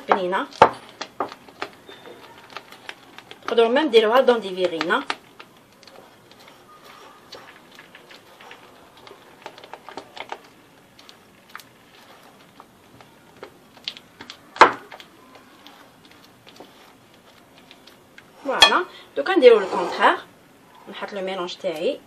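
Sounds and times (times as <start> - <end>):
spatula scraping glass bowl: 19.4 - 20.2.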